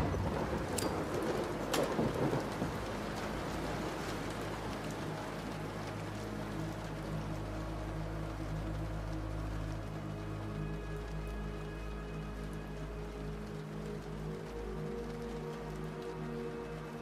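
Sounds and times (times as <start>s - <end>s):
thunder crack and rumble: 0.0s - 9.9s
rain falling: 0.0s - 17.0s.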